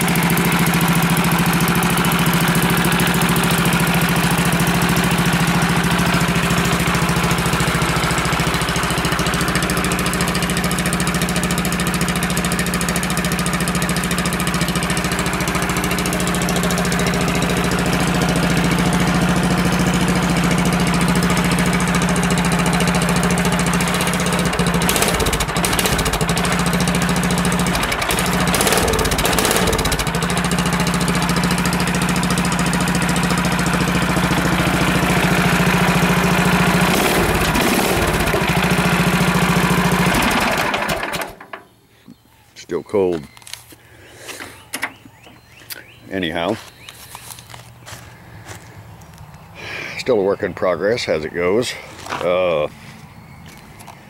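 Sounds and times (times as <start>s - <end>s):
engine idling: 0.0s - 41.6s
engine knocks: 0.0s - 41.7s.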